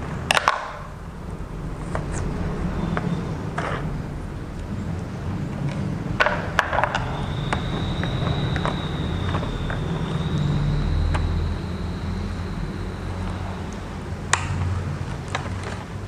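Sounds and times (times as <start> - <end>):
faint high whine: 0.0 - 16.0
steady low hum: 0.0 - 16.0.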